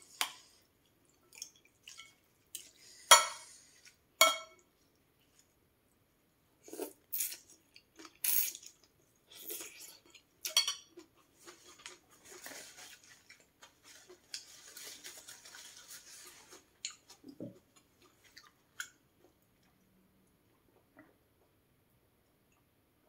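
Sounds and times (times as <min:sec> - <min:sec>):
tissue rustling: 0:12.1 - 0:16.8.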